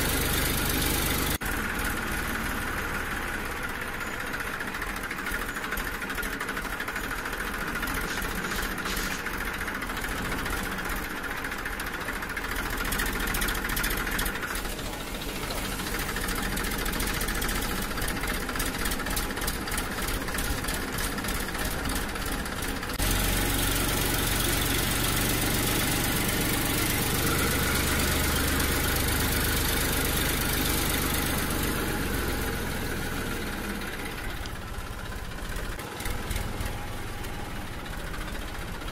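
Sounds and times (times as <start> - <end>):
motor running: 12.5 - 38.8.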